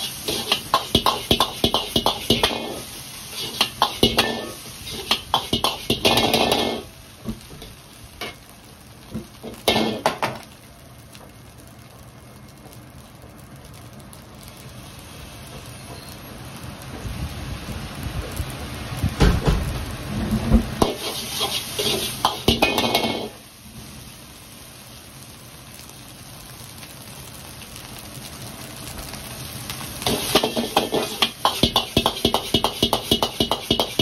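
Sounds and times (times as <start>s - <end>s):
metal ladle clanging in wok: 3.4s - 6.9s, 21.8s - 23.3s.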